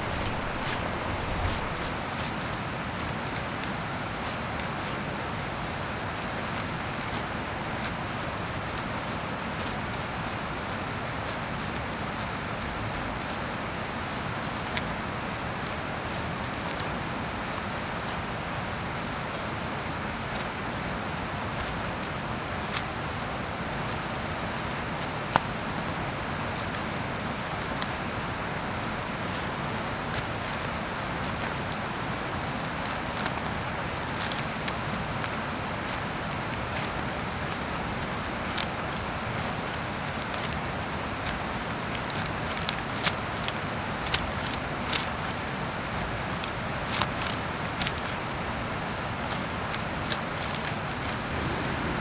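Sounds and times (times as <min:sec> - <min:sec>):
knife shaving wood: 0:00.0 - 0:51.8
steady rushing noise: 0:00.0 - 0:52.0.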